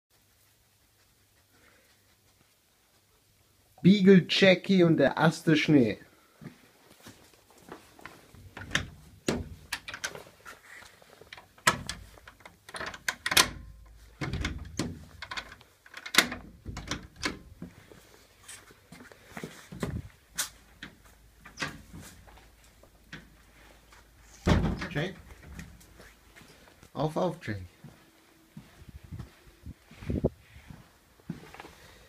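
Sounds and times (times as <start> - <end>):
doors opening and closing: 8.3 - 10.4, 11.3 - 17.8, 19.7 - 23.4, 24.2 - 26.1
knocks and clicks: 11.6 - 17.5.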